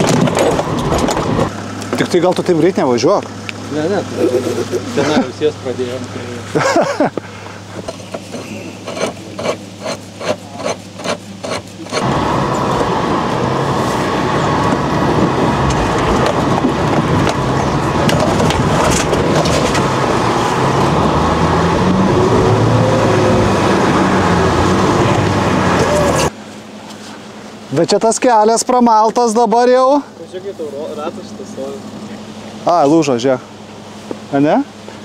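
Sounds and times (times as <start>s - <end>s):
knocks and rattles: 0.0s - 2.2s
vehicle engine running hard: 0.0s - 35.0s.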